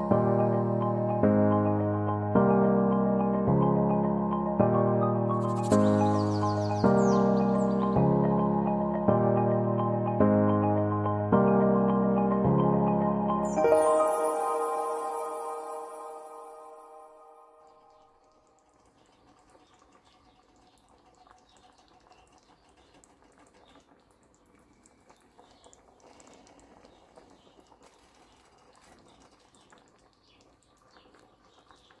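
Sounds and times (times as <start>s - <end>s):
stew simmering with pops: 18.0s - 32.0s.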